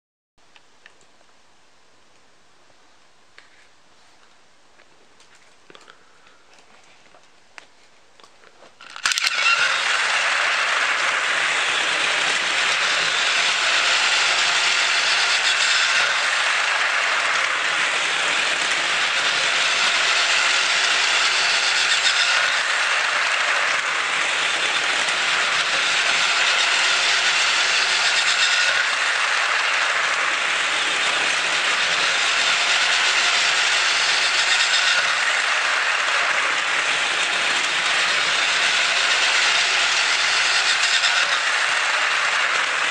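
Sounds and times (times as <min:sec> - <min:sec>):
toy train motor whirring: 0:08.7 - 0:42.9
wheels rattling on plastic rails: 0:08.7 - 0:42.9.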